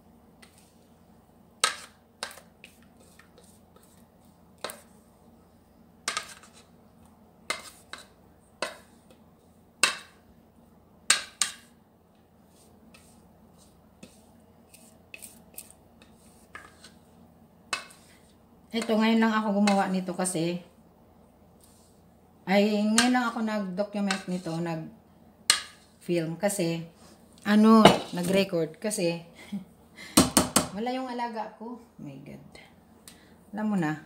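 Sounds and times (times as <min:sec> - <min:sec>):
spatula knocking a mixing bowl: 0:09.8 - 0:10.2, 0:11.1 - 0:11.7, 0:30.2 - 0:30.8.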